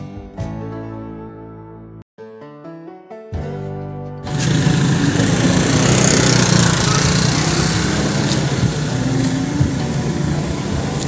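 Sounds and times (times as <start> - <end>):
small engine droning: 4.2 - 11.0.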